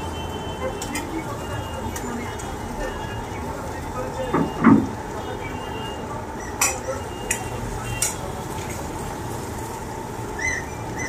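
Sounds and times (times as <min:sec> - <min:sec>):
steady background noise: 0:00.0 - 0:11.0
utensils clinking: 0:06.5 - 0:08.9.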